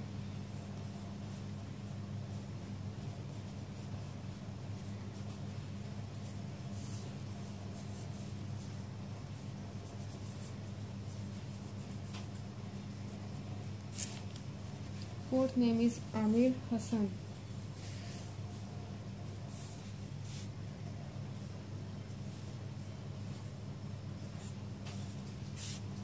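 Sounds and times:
marker scratching on paper: 3.0 - 12.4, 24.4 - 26.0.

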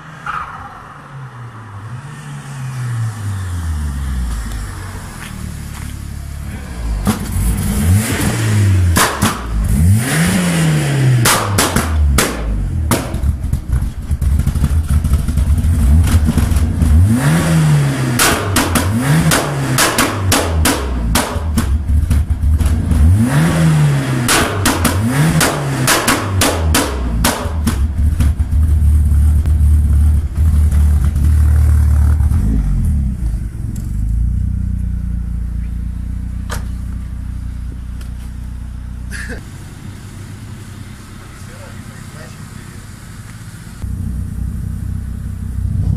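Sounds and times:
car engine revving: 0.0 - 45.9
exhaust pops and bangs: 7.0 - 9.7, 11.2 - 17.2, 18.1 - 23.2, 24.2 - 33.0, 36.4 - 38.3.

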